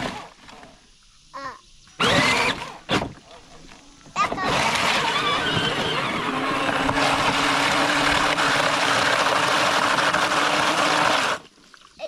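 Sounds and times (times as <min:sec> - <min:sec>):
electric toy motor whining: 0:02.0 - 0:03.0, 0:04.2 - 0:11.4.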